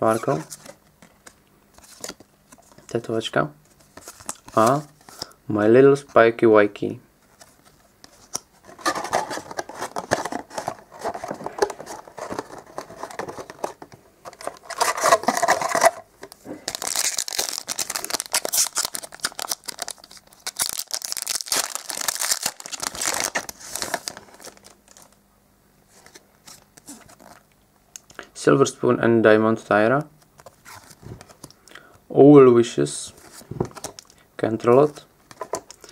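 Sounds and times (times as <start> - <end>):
cards being handled: 3.7 - 5.4
plastic wrapper tearing and crinkling: 14.4 - 25.2.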